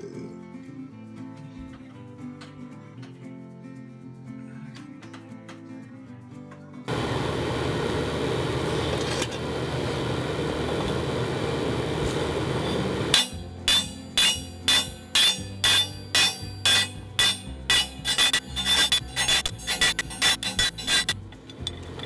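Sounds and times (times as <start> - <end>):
furnace fire and blower roar: 6.9 - 15.6
hammer ringing on metal: 13.1 - 21.1.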